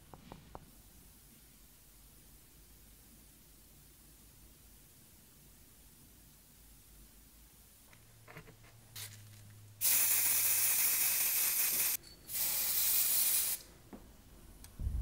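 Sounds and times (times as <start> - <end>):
spray paint can hissing: 9.8 - 13.7.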